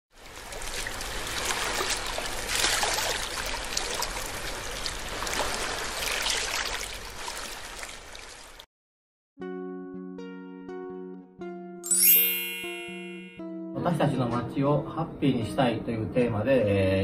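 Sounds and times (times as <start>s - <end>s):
water lapping and splashing: 0.2s - 8.7s.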